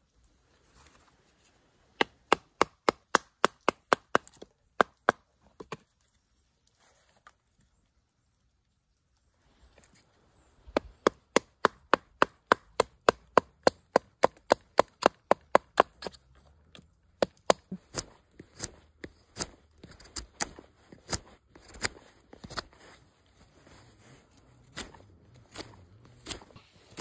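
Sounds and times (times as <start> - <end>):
knife chopping wood: 2.0 - 5.8, 10.7 - 16.2, 17.2 - 22.8, 24.6 - 27.0.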